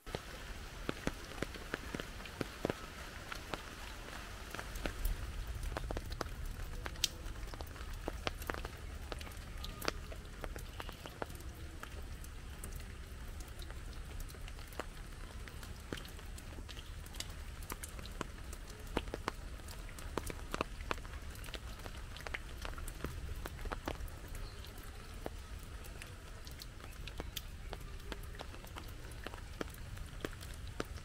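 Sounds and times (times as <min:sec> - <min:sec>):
heavy rain: 0:00.0 - 0:31.0
raindrops tapping: 0:00.0 - 0:31.0.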